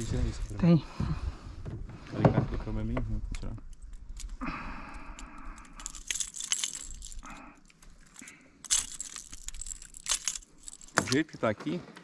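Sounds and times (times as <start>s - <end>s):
metal pliers clinking on hooks: 5.8s - 7.4s, 8.1s - 11.2s.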